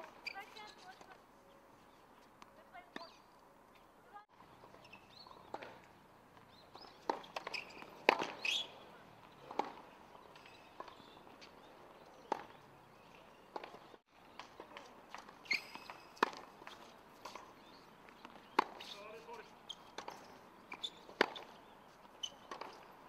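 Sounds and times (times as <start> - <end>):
tennis ball hit by rackets: 6.8 - 8.6, 9.4 - 9.8, 12.3 - 12.6, 14.4 - 17.5, 18.2 - 18.9, 19.9 - 21.5, 22.3 - 22.8.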